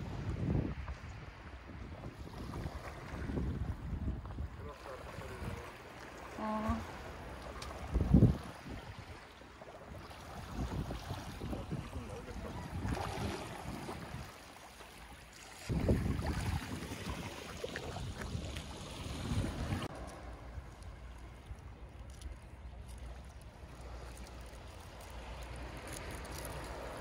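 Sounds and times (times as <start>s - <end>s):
wind buffeting microphone: 0.0s - 5.7s, 7.1s - 9.2s, 9.9s - 14.4s, 15.6s - 22.7s
waves lapping against seawall: 0.0s - 27.0s.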